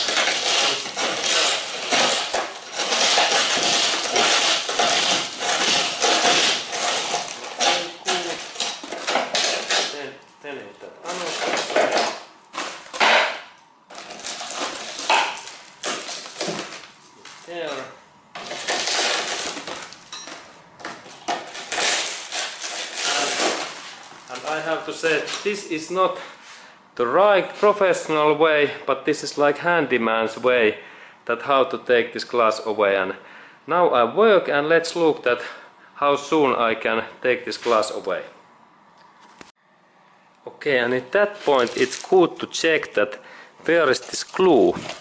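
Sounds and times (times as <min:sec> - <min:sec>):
glass crunching and crackling: 0:00.0 - 0:10.1, 0:11.1 - 0:24.6, 0:41.4 - 0:43.0, 0:43.9 - 0:45.0
glass fragments clinking: 0:20.0 - 0:20.4.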